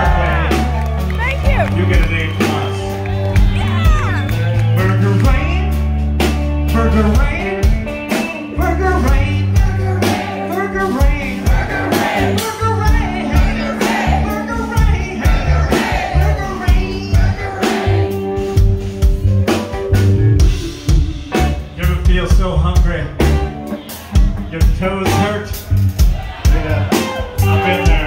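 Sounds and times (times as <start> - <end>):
electric guitar: 0.0 - 22.2, 22.8 - 28.0
drum kit: 0.0 - 28.0
electric bass: 0.0 - 28.0
person singing: 8.5 - 18.5.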